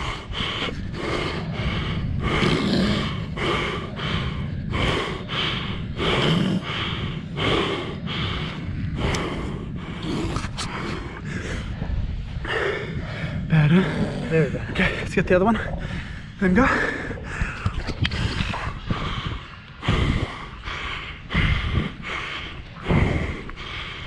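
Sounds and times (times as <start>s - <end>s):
heavy panting breaths: 0.0s - 24.0s
steady low rumble: 0.0s - 24.0s.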